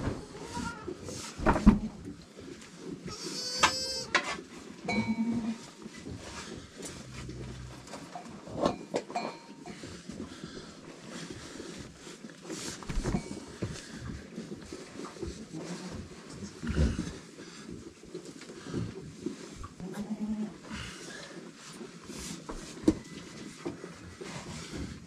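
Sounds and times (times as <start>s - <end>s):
rustling and knocks: 0.0s - 19.8s
goat bleating: 3.1s - 4.2s, 4.9s - 5.7s, 19.8s - 20.6s.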